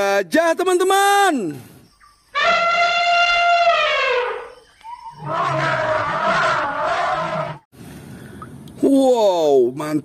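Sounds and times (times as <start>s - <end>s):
elephant trumpeting: 2.4s - 4.6s, 5.2s - 7.6s.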